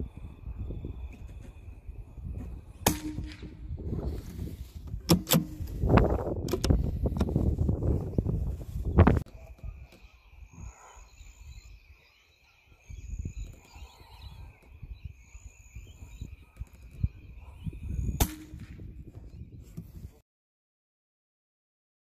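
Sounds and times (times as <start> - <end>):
rifle shot crack: 2.8 - 3.7, 18.2 - 18.8.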